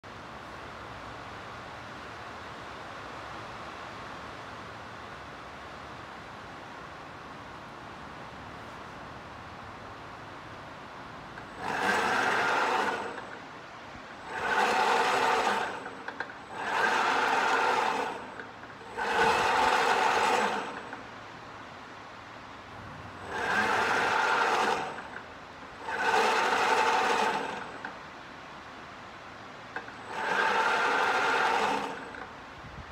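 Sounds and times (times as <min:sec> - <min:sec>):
mechanical whir of strand pusher: 0:11.3 - 0:21.3, 0:22.7 - 0:28.2, 0:29.7 - 0:32.6.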